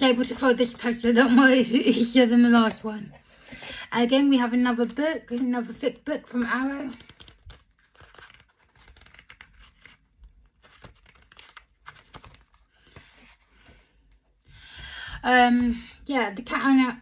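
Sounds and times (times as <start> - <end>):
pages flipping: 5.3 - 14.2.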